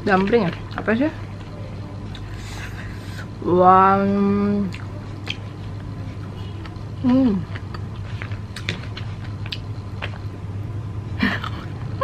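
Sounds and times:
chewing and mouth sounds: 0:04.6 - 0:10.4
woman humming: 0:07.0 - 0:07.5.

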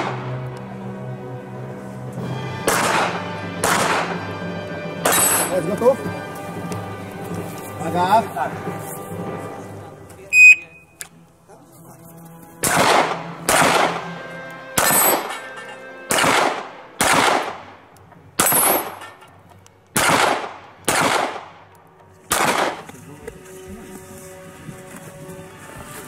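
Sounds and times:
handgun shots: 0:02.7 - 0:04.2, 0:12.6 - 0:14.0, 0:14.8 - 0:15.3, 0:16.1 - 0:17.6, 0:18.4 - 0:19.0, 0:19.9 - 0:21.6, 0:22.3 - 0:22.9.

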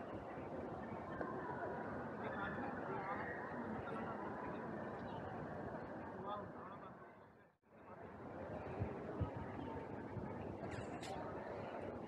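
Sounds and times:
faint voices of people: 0:00.0 - 0:12.0.

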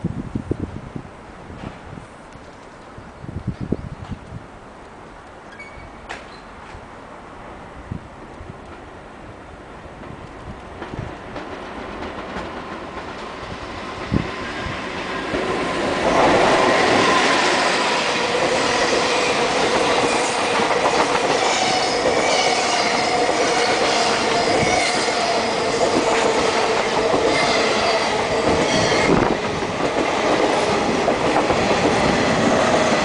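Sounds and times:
thin squealing tones: 0:05.5 - 0:06.5
train wheels clattering on rails: 0:09.9 - 0:33.0.

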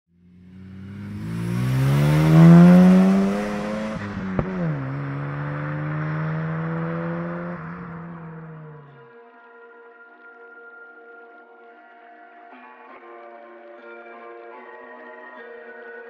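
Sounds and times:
rotary engine accelerating: 0:00.2 - 0:09.0.

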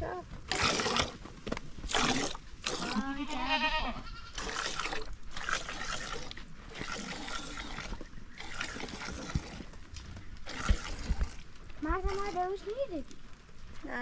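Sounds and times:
animal bleating: 0:02.8 - 0:04.6.

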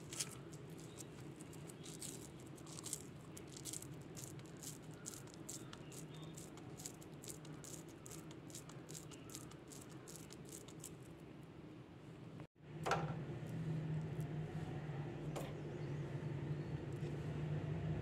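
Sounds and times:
hands squeezing crumbly mixture: 0:00.0 - 0:11.2.

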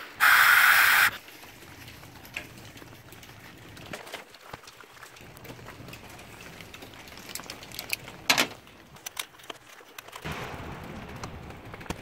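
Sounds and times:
breathy hiss: 0:00.0 - 0:01.2.

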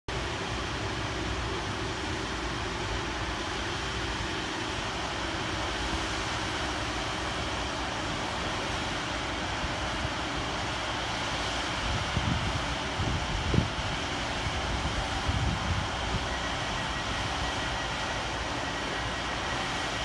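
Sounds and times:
diesel train engines idling: 0:00.1 - 0:20.0
wind buffeting microphone: 0:11.7 - 0:17.4.

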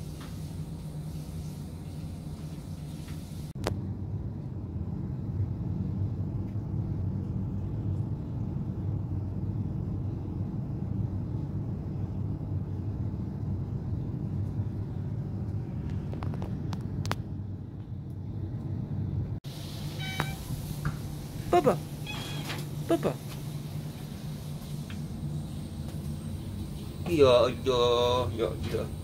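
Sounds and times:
low steady rumble: 0:00.0 - 0:29.0.

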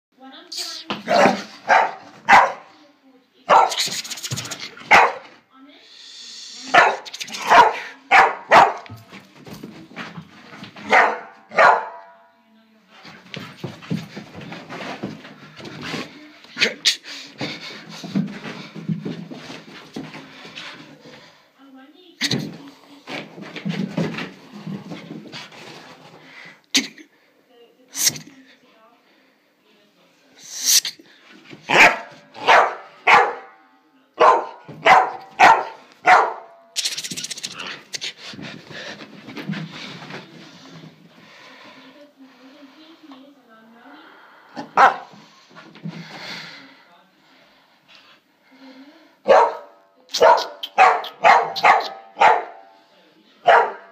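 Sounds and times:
dog barking: 0:01.1 - 0:02.7, 0:03.5 - 0:03.8, 0:04.9 - 0:05.3, 0:06.7 - 0:08.9, 0:10.8 - 0:12.2, 0:31.7 - 0:33.6, 0:34.2 - 0:36.6, 0:44.6 - 0:45.1, 0:49.2 - 0:52.7, 0:53.4 - 0:53.9.

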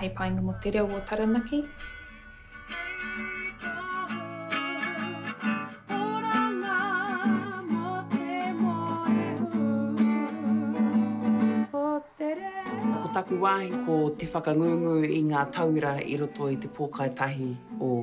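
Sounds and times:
plucked acoustic guitar: 0:00.0 - 0:18.0.

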